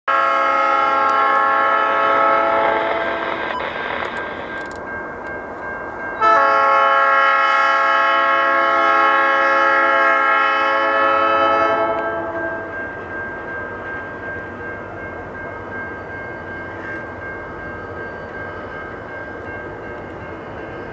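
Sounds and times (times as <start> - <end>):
locomotive horn blasts: 0.1 - 3.2, 6.2 - 12.7.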